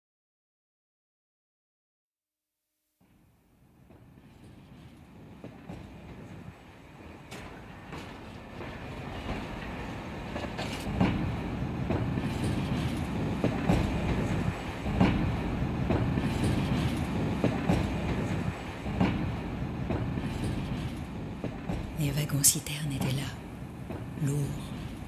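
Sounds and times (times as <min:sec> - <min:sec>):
train rumbling on rails: 0:03.1 - 0:25.0
wheels clacking over rail joints: 0:03.9 - 0:22.0.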